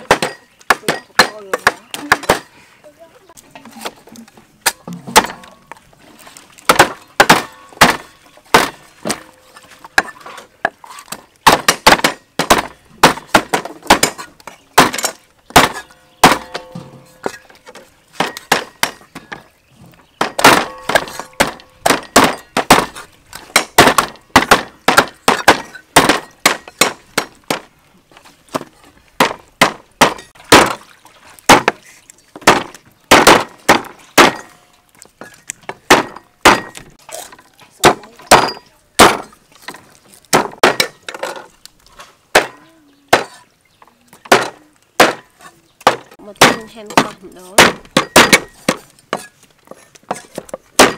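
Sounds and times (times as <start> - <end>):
cleaver chopping on wooden block: 6.7 - 9.2, 11.4 - 16.7, 20.2 - 27.6, 32.4 - 34.5, 44.3 - 49.2.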